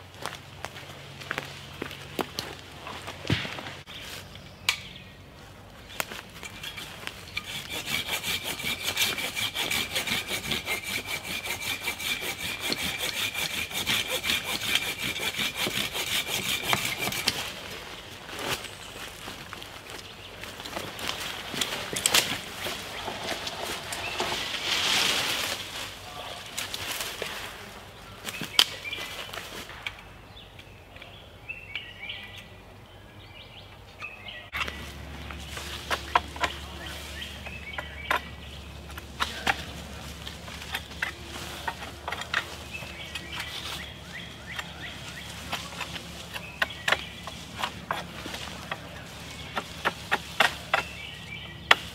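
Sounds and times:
birds chirping: 0.0s - 24.8s, 27.2s - 51.9s
blade chopping sapling: 34.6s - 51.9s.

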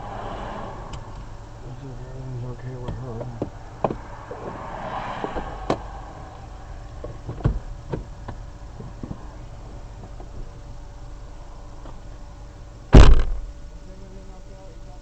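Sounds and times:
highway traffic passing: 0.0s - 12.6s
sharp knocks: 13.0s - 13.5s.

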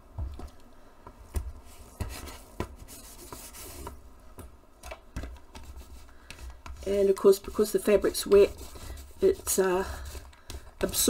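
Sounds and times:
soft rubbing: 1.5s - 4.0s, 5.5s - 11.0s
rag dabbing over stencil: 5.1s - 11.0s.

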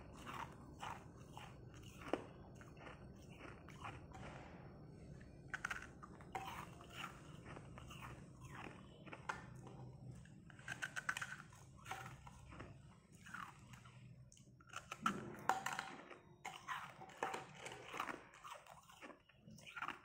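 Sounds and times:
ice crunching while chewed: 0.0s - 20.0s.

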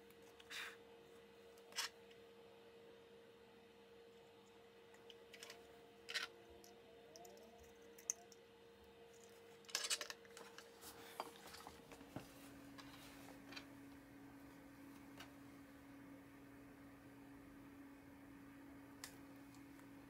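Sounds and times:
small metal parts clicking: 5.0s - 8.4s, 9.1s - 10.5s.

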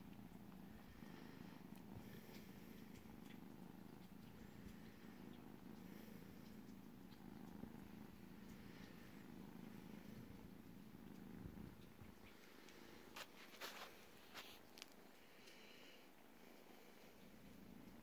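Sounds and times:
cat purring: 0.0s - 18.0s
faint clicks: 1.7s - 13.4s, 14.6s - 15.9s.

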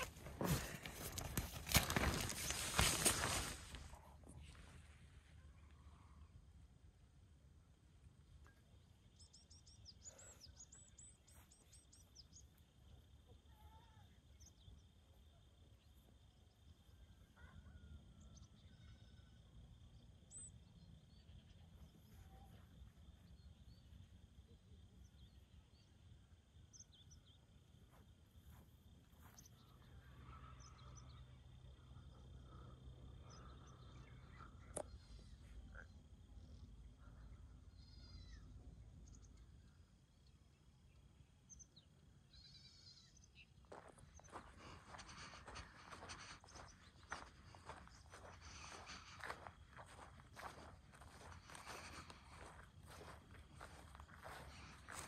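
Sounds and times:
distant bird chirps: 26.6s - 55.0s.

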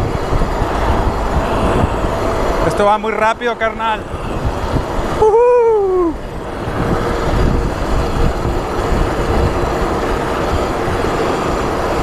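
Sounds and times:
bike tyres rumbling on asphalt: 0.0s - 12.0s
wind rushing on microphone: 0.0s - 12.0s
person yelling: 5.2s - 6.2s.

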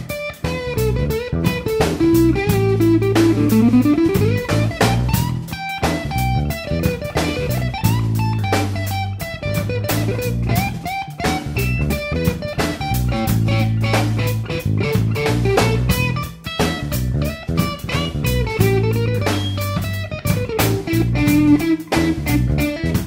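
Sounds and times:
blues-rock music: 0.0s - 23.0s
guitar note sliding upward: 1.2s - 16.2s.

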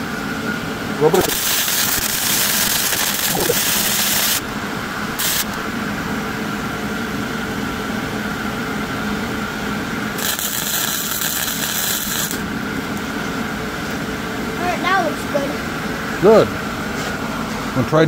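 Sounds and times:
steady low hum: 0.0s - 18.0s
welding arc hissing: 1.0s - 5.6s, 10.1s - 12.5s.

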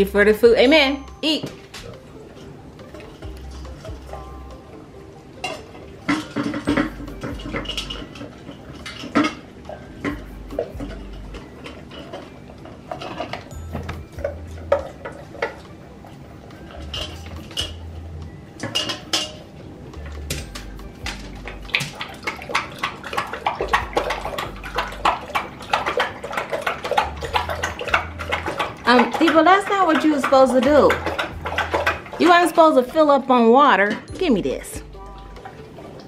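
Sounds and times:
dog eating from metal bowl: 1.6s - 4.7s, 5.4s - 33.2s, 33.8s - 36.0s
dog lapping water: 5.5s - 18.0s, 20.6s - 33.2s, 34.8s - 36.0s.

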